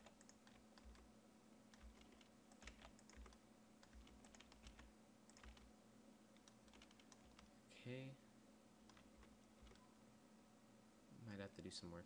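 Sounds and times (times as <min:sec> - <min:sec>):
keyboard keys clicking: 0:00.0 - 0:01.1, 0:01.7 - 0:05.7, 0:06.4 - 0:07.5, 0:08.9 - 0:09.9
low steady hum: 0:00.0 - 0:12.0.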